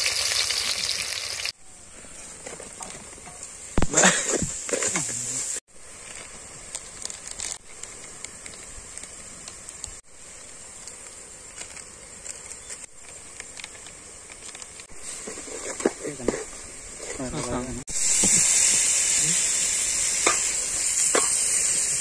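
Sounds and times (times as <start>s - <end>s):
chicken and onions sizzling: 0.0s - 1.6s, 2.9s - 22.0s
spice packet crinkling: 6.0s - 10.0s, 10.8s - 14.9s.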